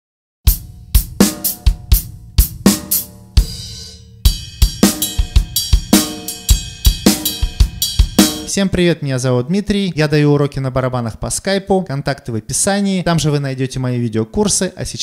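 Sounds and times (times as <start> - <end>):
acoustic drum kit playing: 0.5 - 8.8.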